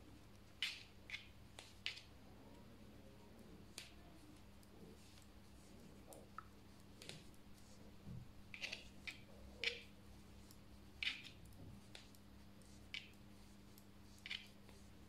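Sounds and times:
metal knitting needles clicking: 0:08.5 - 0:12.2, 0:13.8 - 0:14.6.

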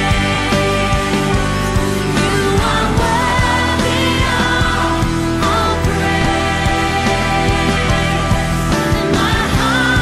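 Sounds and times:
band playing worship song: 0:00.0 - 0:10.0.

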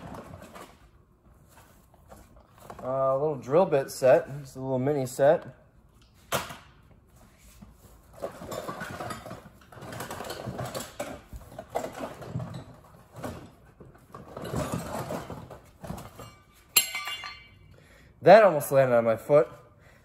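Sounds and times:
tools rustling and knocking: 0:07.3 - 0:17.7
metallic clang: 0:16.2 - 0:17.7.

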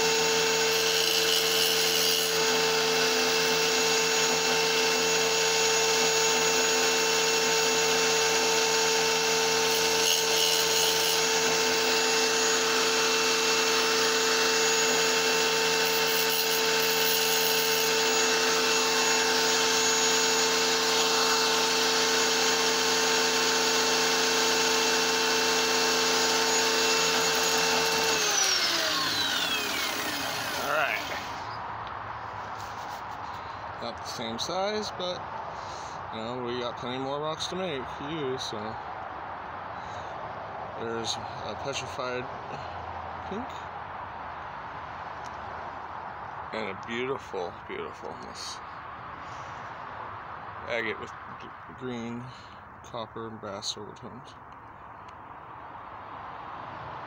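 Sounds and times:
tile saw cutting rock: 0:00.0 - 0:31.5.

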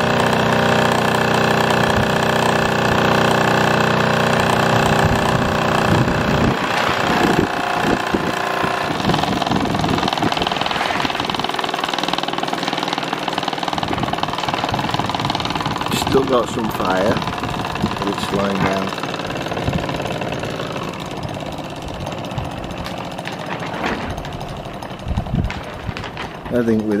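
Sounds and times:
toy steam engine running: 0:00.0 - 0:27.0.

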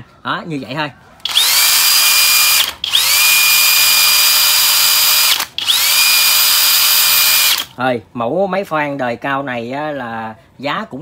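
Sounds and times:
drill motor whining: 0:01.2 - 0:07.7.

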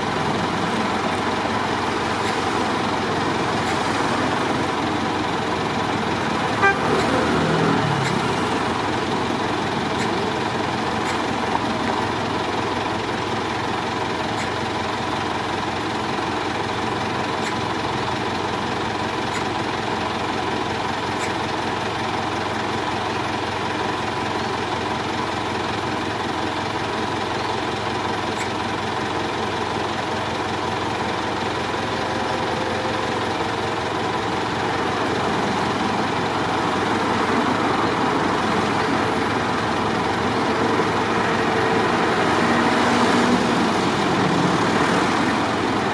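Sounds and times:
car engine and road noise: 0:00.0 - 0:45.9.

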